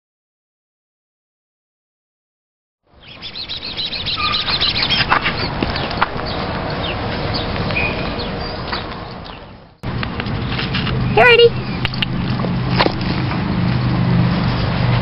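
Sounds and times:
small birds chirping: 2.9s - 14.8s.

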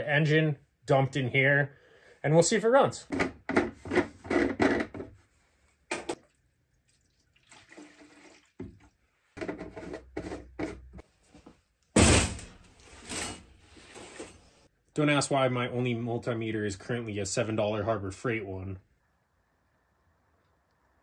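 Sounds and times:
fuel pouring into plastic tank: 6.2s - 9.0s
loud thump: 12.0s - 12.6s.

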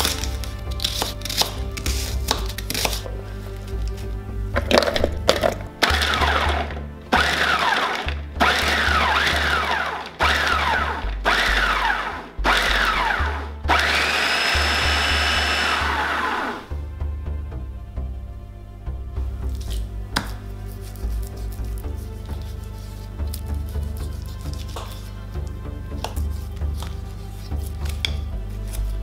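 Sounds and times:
food processor chopping: 5.8s - 16.7s.

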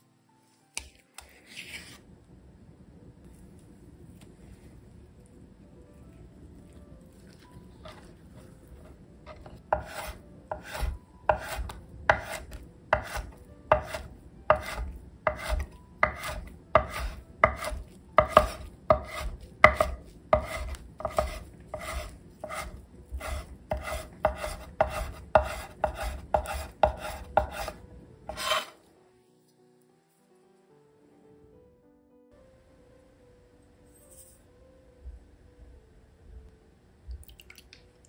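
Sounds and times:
knife slicing on wooden board: 9.3s - 28.8s
knife blade knocking on wood: 9.8s - 27.7s.

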